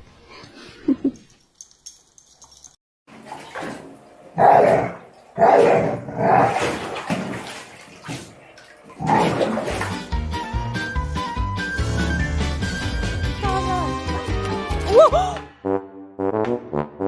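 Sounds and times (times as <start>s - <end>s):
dog splashing water in bathtub: 3.1s - 10.2s.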